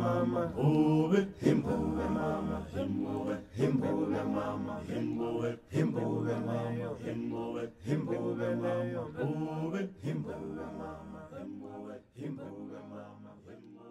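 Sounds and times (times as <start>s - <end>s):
unaccompanied voices chanting: 0.0s - 13.9s.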